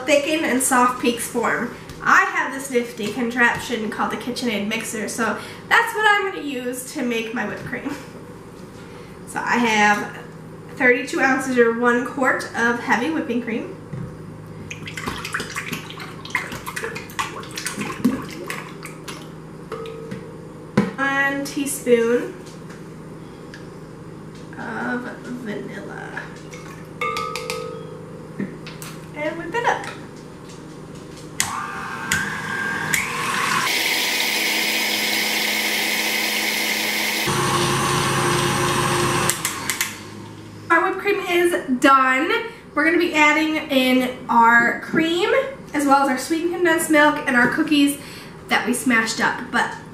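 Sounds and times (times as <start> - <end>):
stand mixer motor whining: 31.4 - 40.4.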